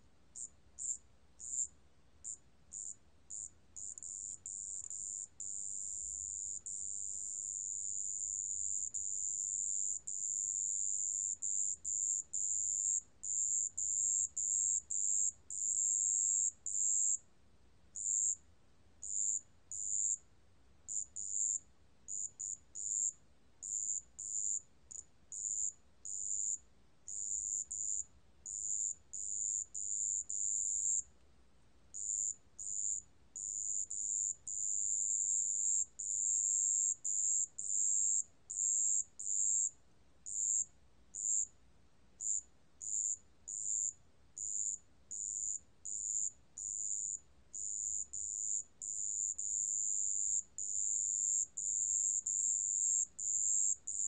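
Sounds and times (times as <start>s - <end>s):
cricket trilling: 0.4s - 8.0s, 10.0s - 17.2s, 18.0s - 18.4s, 19.0s - 20.2s, 20.9s - 28.0s, 31.9s - 39.7s, 40.3s - 40.6s, 41.2s - 41.5s, 42.2s - 47.2s.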